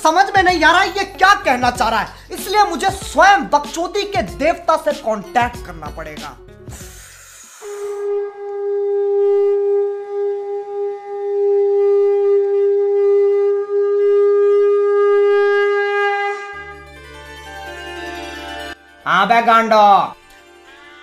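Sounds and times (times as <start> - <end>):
conch shell blown: 7.5 - 18.6.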